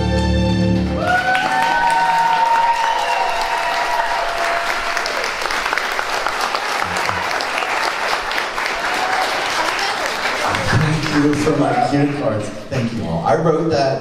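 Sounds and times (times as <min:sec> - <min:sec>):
audience applauding: 0:00.0 - 0:13.1.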